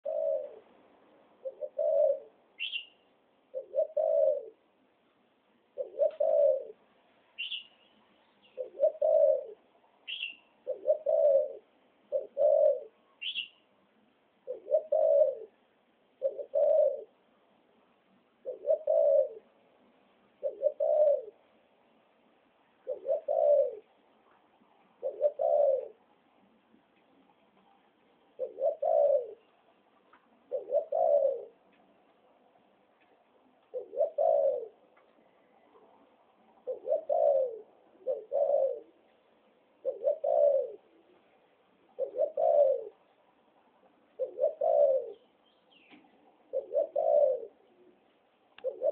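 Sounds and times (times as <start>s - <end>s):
dove cooing: 0.0s - 4.7s, 5.7s - 7.7s, 8.4s - 13.6s, 14.4s - 17.2s, 18.4s - 19.6s, 20.3s - 21.5s, 22.8s - 24.0s, 24.9s - 26.1s, 28.3s - 29.6s, 30.4s - 31.7s, 33.6s - 39.1s, 39.7s - 43.1s, 44.1s - 48.9s.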